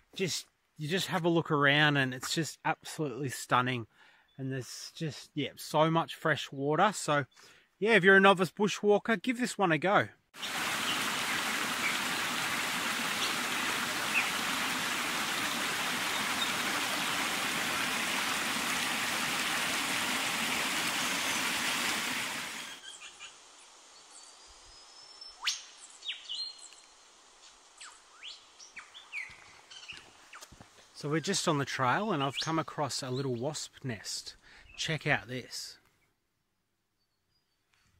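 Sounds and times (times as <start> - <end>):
birds chirping and calling: 10.4 - 17.9
creek rushing and splashing: 10.4 - 22.8.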